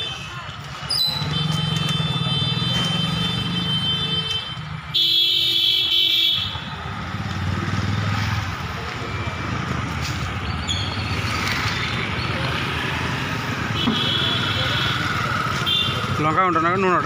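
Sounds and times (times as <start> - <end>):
vehicle horn: 1.2 - 6.6, 13.8 - 16.1.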